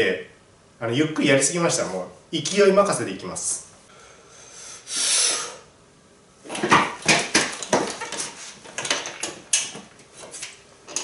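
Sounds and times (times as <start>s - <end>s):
man breathing forcefully: 3.9s - 5.7s.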